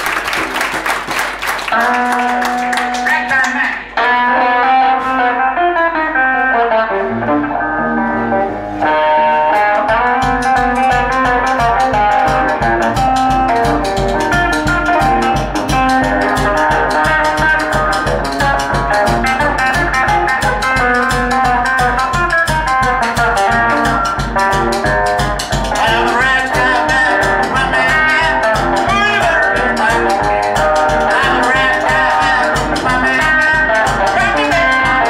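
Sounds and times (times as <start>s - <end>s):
drum kit beat: 0.0s - 3.5s, 8.2s - 35.0s
electric guitar playing blues: 1.6s - 35.0s.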